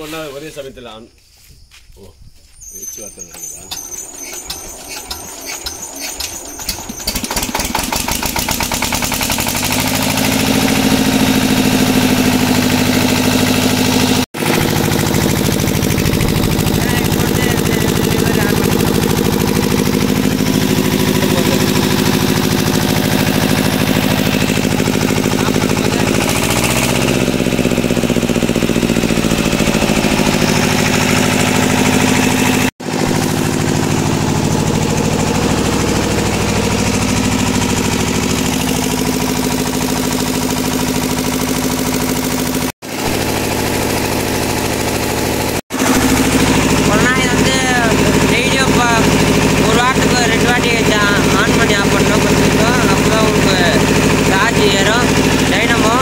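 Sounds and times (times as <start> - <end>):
diesel generator running: 2.7 - 56.0.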